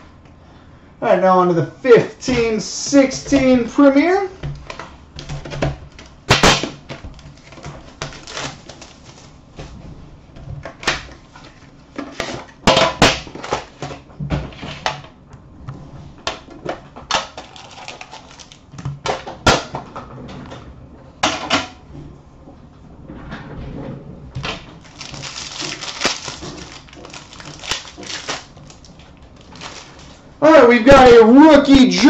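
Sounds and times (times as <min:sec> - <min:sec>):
cardboard and wrapper rustling: 0:04.6 - 0:12.5, 0:17.4 - 0:18.7, 0:24.7 - 0:30.3
box clattering: 0:24.5 - 0:30.2.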